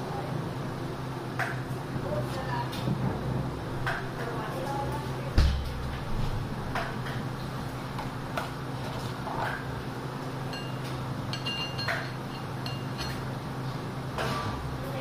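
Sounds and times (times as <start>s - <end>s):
metallic clinks and pings: 10.5s - 13.2s.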